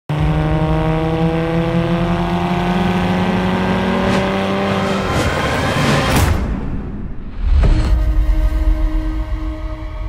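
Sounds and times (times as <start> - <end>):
car engine under hard acceleration: 0.1 - 6.1.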